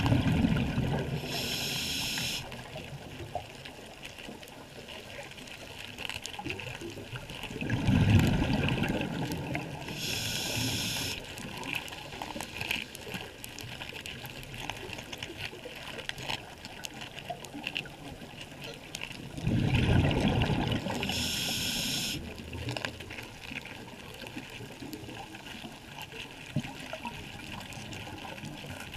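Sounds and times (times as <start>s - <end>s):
underwater exhaled bubbles burbling: 0.0s - 5.2s, 6.3s - 28.9s
faint crackle of small clicks: 0.0s - 28.9s
regulator inhale hiss: 1.2s - 2.5s, 9.9s - 11.3s, 21.0s - 22.2s.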